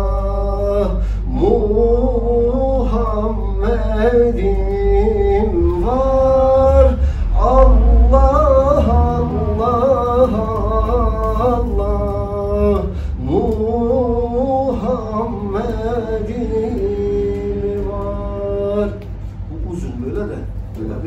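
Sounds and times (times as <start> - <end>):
man singing unaccompanied: 0.0 - 19.6
singer breathing: 1.0 - 1.3, 6.9 - 7.4, 12.9 - 13.2.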